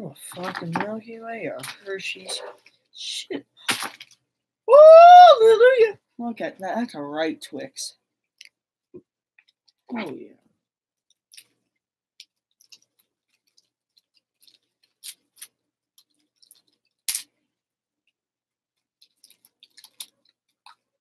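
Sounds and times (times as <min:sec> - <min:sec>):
plastic candy wrapper crinkling: 0:12.2 - 0:17.3, 0:18.8 - 0:21.0
wrapper snapping: 0:19.0 - 0:20.8.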